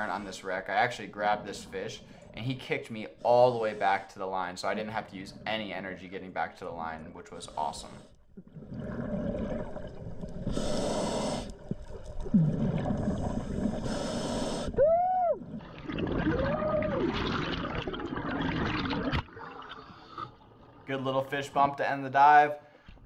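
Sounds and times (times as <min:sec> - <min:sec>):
gurgling exhaled bubbles: 0:00.0 - 0:20.9
scuba regulator hissing: 0:10.5 - 0:11.6, 0:13.8 - 0:14.8.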